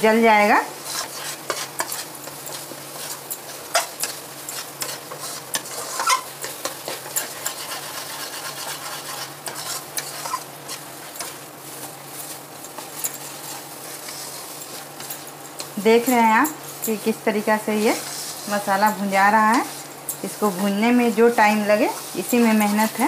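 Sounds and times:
light sizzle: 0:00.0 - 0:23.0
spatula scraping a steel pan: 0:00.8 - 0:16.1, 0:16.8 - 0:23.0.

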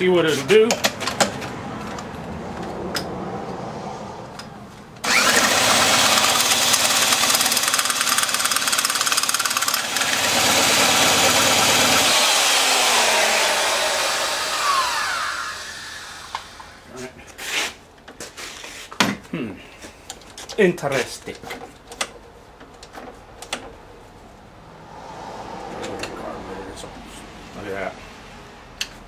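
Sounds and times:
electric drill spinning motor: 0:05.0 - 0:16.9
outboard motor running: 0:05.1 - 0:16.2.

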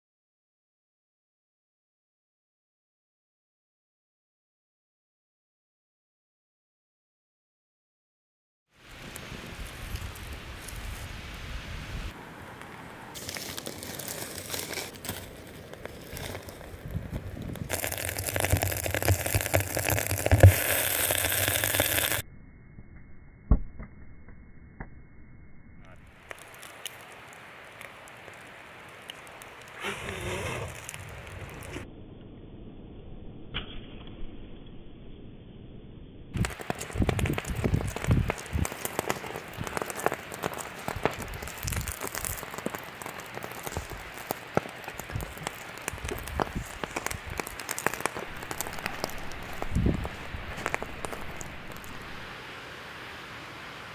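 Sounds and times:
wood fire crackling: 0:08.8 - 0:22.2, 0:25.9 - 0:31.9, 0:36.3 - 0:53.9
quicklime hissing and sizzling: 0:13.1 - 0:22.2, 0:26.0 - 0:31.8, 0:36.4 - 0:53.6
sharp pops: 0:17.6 - 0:22.2, 0:36.4 - 0:52.3.

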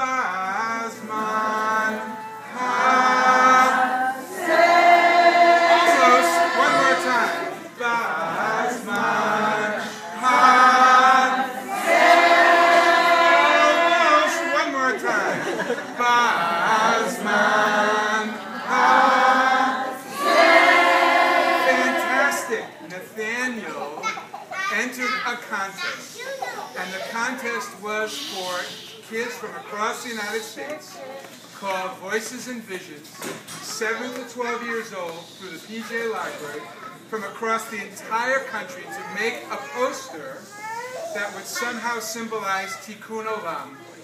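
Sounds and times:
group of voices singing: 0:00.0 - 0:22.9.

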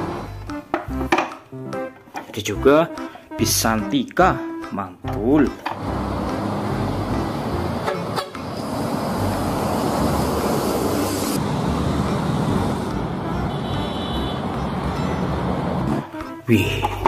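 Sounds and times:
buses driving past: 0:00.0 - 0:01.0, 0:05.4 - 0:17.0
tyre hiss: 0:08.5 - 0:11.4.

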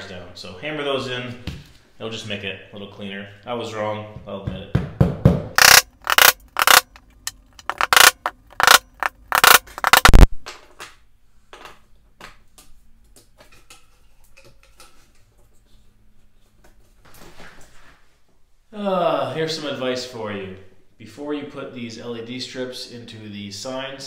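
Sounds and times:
hammer tapping staples: 0:05.3 - 0:06.9.

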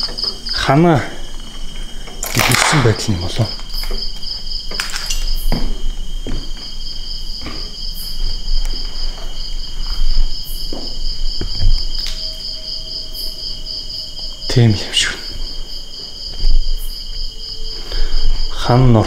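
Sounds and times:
insect chorus trilling: 0:00.0 - 0:19.0
knocks and low thumps: 0:05.5 - 0:12.0.

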